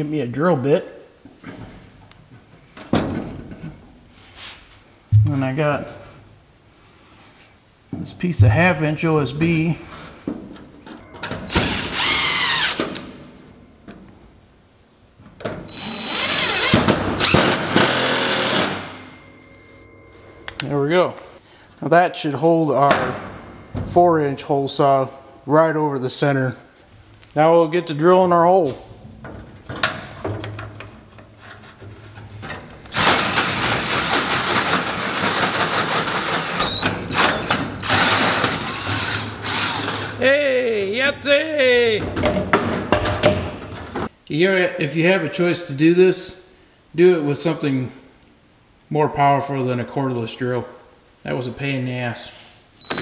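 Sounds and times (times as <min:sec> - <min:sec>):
cordless drill boring into wood: 0:11.5 - 0:12.8, 0:15.7 - 0:18.8, 0:33.0 - 0:40.2.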